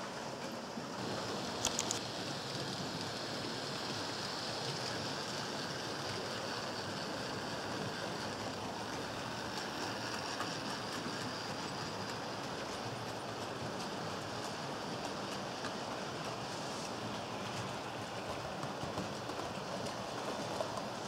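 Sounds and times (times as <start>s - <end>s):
model train motors whirring: 0.6s - 21.0s
metal wheels rolling on rails: 1.0s - 21.0s
sharp clicks: 1.6s - 2.0s.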